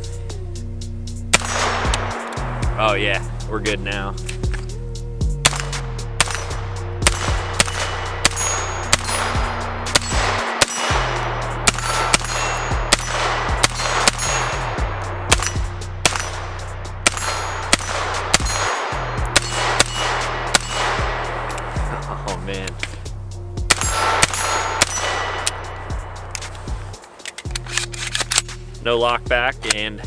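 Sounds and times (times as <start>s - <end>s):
background music with bass line: 0.0s - 30.0s
pistol gunshots: 1.3s - 2.7s, 5.4s - 21.8s, 23.7s - 28.6s.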